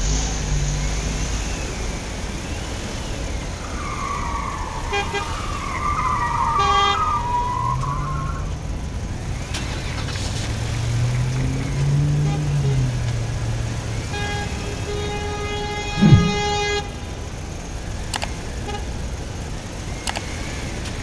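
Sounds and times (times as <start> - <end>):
car horn toots: 14.1 - 16.8
low engine-like hum: 15.9 - 17.0
tone dipping and rising in pitch: 16.0 - 16.6.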